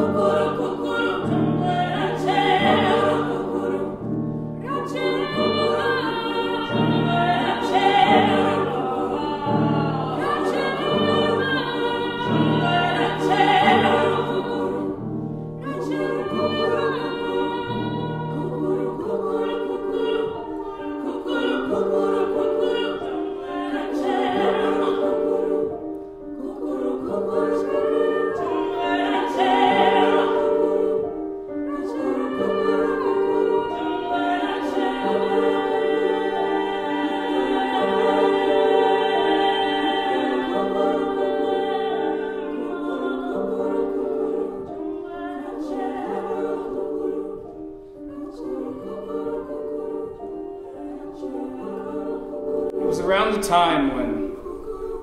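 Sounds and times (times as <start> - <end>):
choir singing: 0.0 - 55.0.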